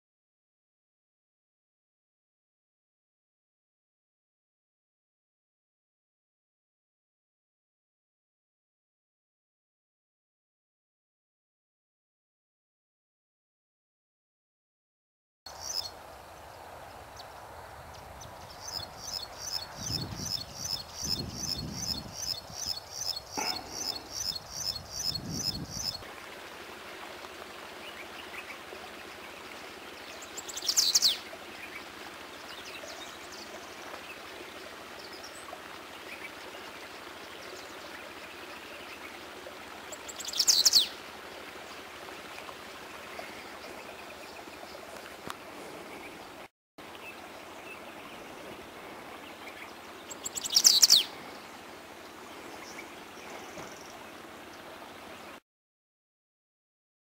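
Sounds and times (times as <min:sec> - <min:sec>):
songbird high trill: 0:18.2 - 0:26.0, 0:30.3 - 0:31.2, 0:40.1 - 0:40.9, 0:50.1 - 0:51.1.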